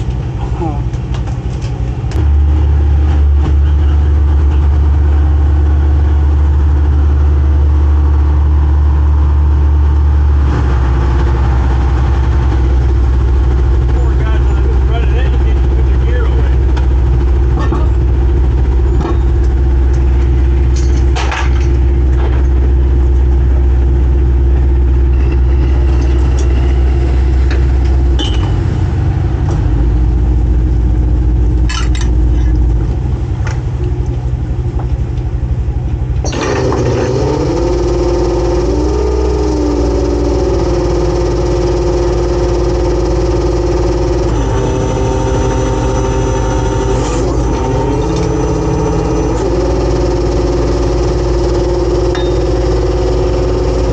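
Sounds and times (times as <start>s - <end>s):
boat engine humming: 0.0s - 53.9s
higher wavering drone: 36.2s - 53.9s.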